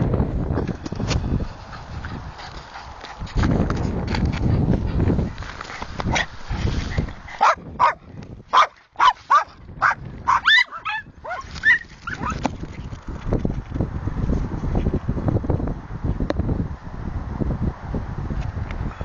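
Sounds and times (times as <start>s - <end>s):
dog barking and yipping: 7.3s - 12.4s.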